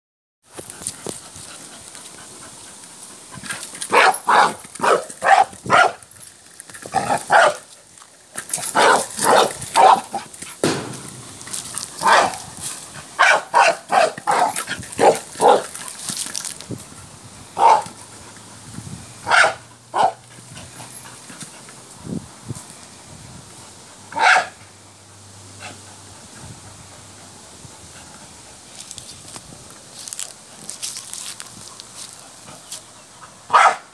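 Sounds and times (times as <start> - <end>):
dog barking: 3.9 - 6.0, 7.3 - 7.6, 8.8 - 10.1, 12.0 - 12.4, 13.2 - 15.6, 17.6 - 17.9, 19.2 - 20.2, 24.2 - 24.6, 33.5 - 33.9.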